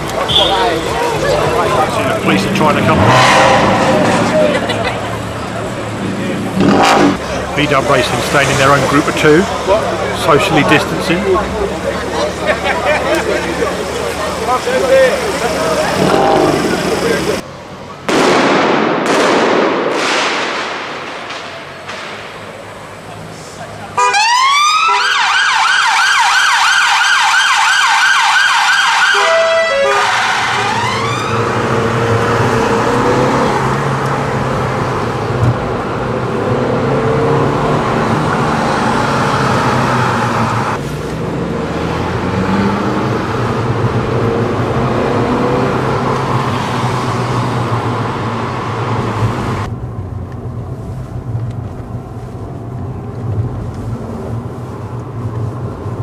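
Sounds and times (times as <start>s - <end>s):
car engine hum and road noise: 0.0s - 18.2s, 21.3s - 56.0s
police siren yelping: 24.0s - 31.9s.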